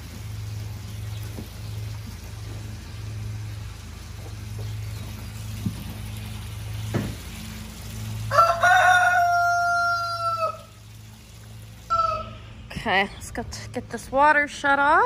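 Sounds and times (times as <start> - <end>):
rooster crowing: 8.3 - 10.8, 11.9 - 12.4.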